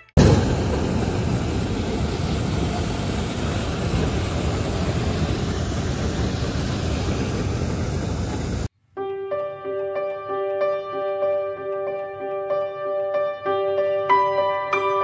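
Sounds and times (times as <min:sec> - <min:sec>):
propane burner blast: 0:00.2 - 0:08.7.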